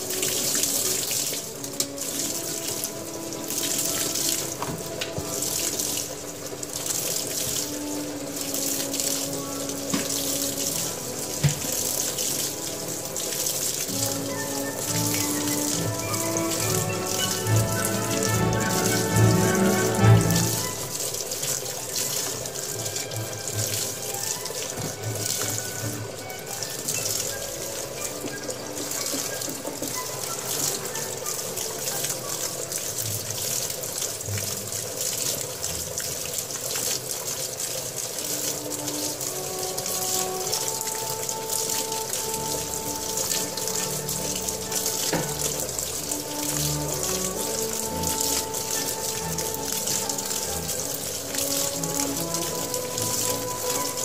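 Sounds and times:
water filling washing machine: 0:00.0 - 0:54.0.

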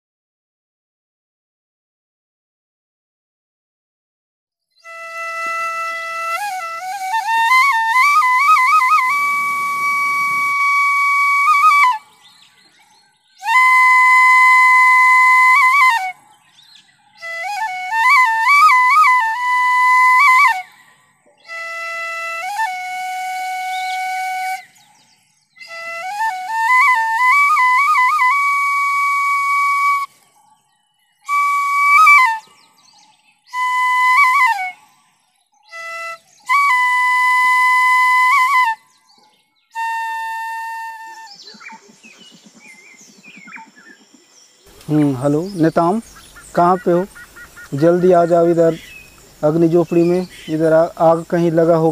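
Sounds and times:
bamboo flute solo melody: 0:04.8 - 0:12.4, 0:13.4 - 0:16.3, 0:17.2 - 0:24.8, 0:25.6 - 0:30.2, 0:31.2 - 0:32.8, 0:33.5 - 0:39.0, 0:39.7 - 0:41.7.

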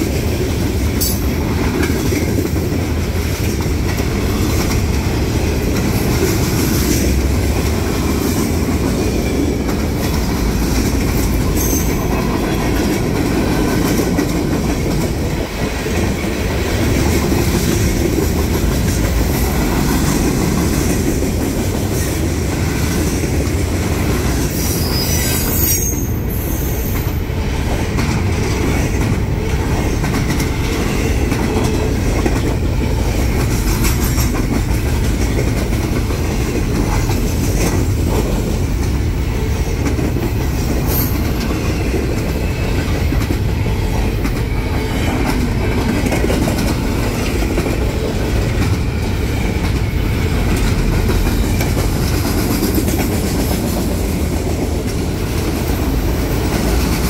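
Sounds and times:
freight train rumbling past: 0:00.0 - 0:57.0
train wheels clicking: 0:00.0 - 0:57.0.

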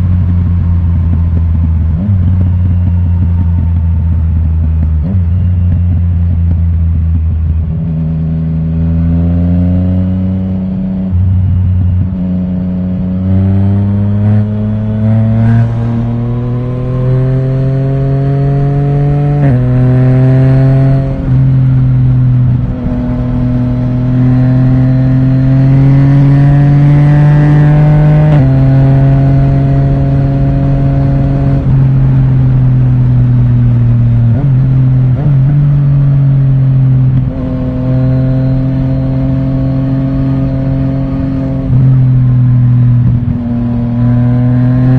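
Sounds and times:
motorcycle engine accelerating: 0:00.0 - 0:44.9.

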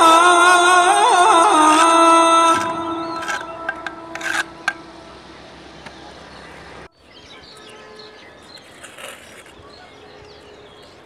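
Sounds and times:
small birds chirping: 0:02.9 - 0:11.0.

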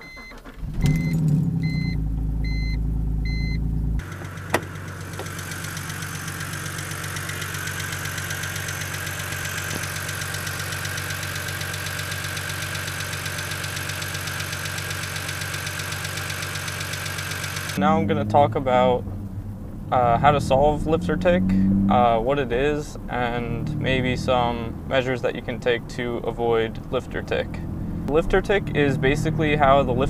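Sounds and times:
short warning chimes: 0:00.0 - 0:03.6
engine lifter ticking: 0:00.0 - 0:17.8
car engine cranking and idling: 0:00.0 - 0:30.0.

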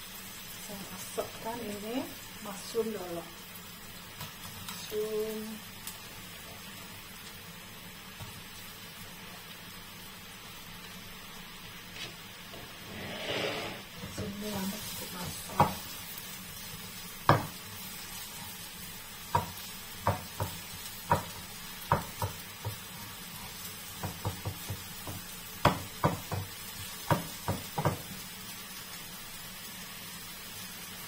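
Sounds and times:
mushrooms sizzling in pan: 0:00.0 - 0:31.0
spatula tapping and scraping pan: 0:15.2 - 0:15.9, 0:17.2 - 0:17.6, 0:19.3 - 0:28.1.

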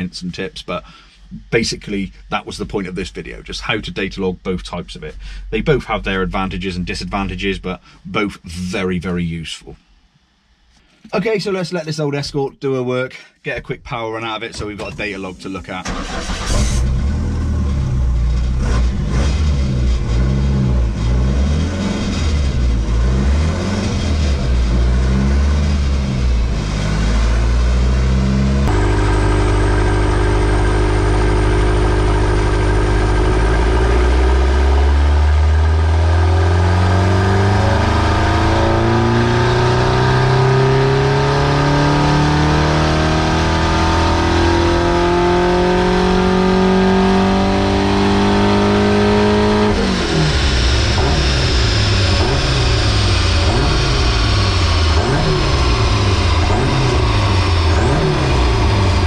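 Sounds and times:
car engine revving under load: 0:14.5 - 0:59.0.

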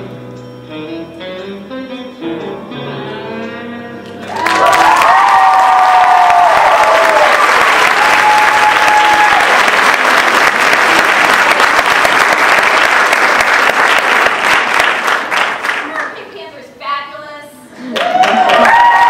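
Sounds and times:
audience applauding: 0:04.2 - 0:16.2, 0:17.8 - 0:19.0.

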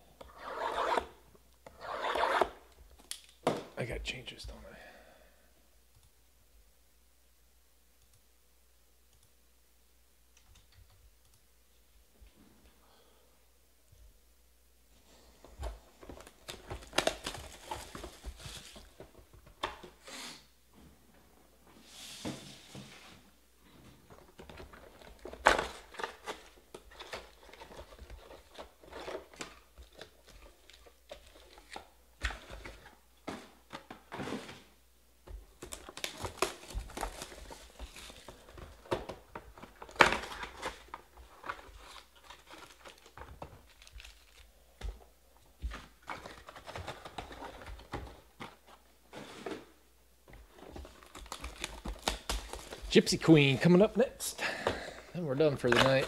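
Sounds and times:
cardboard tearing and rustling: 0:16.0 - 0:19.1, 0:35.6 - 0:44.5, 0:50.5 - 0:53.0
pack wrappers crinkling: 0:35.6 - 0:44.9, 0:50.6 - 0:53.4.

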